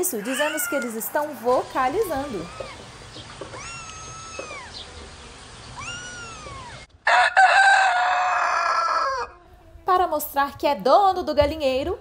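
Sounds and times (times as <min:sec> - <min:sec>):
rooster crowing: 0:00.0 - 0:02.9, 0:05.8 - 0:09.7
high rising and falling calls: 0:00.1 - 0:09.5.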